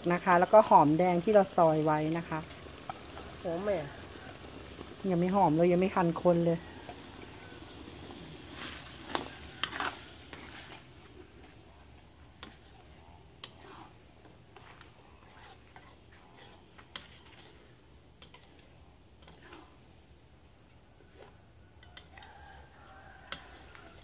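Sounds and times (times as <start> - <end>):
insects droning: 0.0 - 24.0
metal spatula scraping a wok: 0.2 - 11.5, 12.3 - 19.8.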